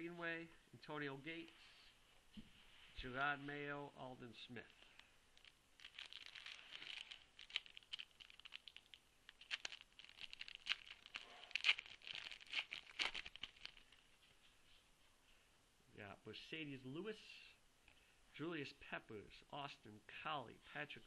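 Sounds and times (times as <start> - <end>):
foil wrapper tearing and crinkling: 5.4 - 14.0.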